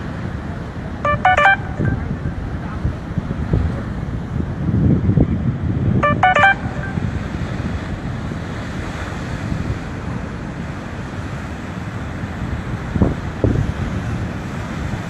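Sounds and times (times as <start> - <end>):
short electronic beeps: 1.1 - 2.5, 6.0 - 7.1
wind buffeting microphone: 2.1 - 6.0.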